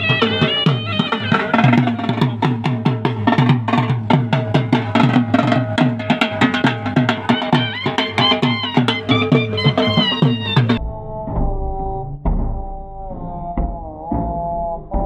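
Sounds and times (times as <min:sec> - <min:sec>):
drum in fast rhythm: 0:00.0 - 0:11.6.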